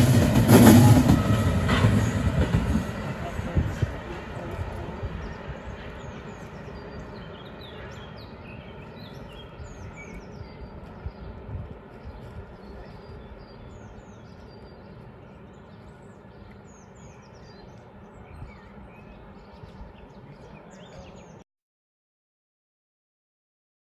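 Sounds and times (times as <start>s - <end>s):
train rumbling: 0.0s - 21.4s
small birds chirping: 3.4s - 21.4s.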